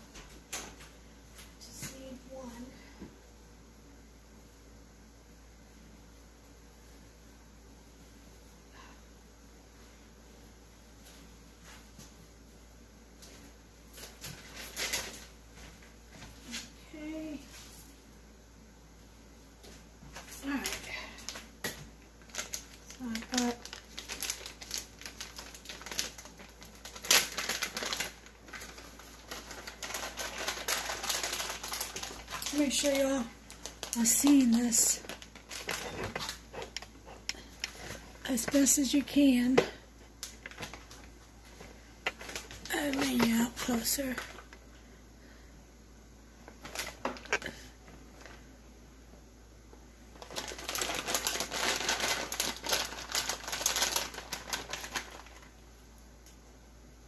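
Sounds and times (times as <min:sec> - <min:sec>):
plastic bag crinkling: 0:22.1 - 0:44.7, 0:46.5 - 0:48.4, 0:50.1 - 0:55.6.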